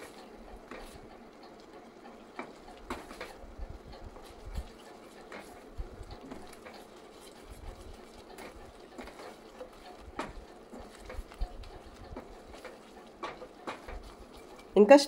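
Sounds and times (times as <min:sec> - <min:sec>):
thick paste bubbling and popping: 0:00.0 - 0:14.8
wooden spatula scraping pan: 0:04.0 - 0:14.8.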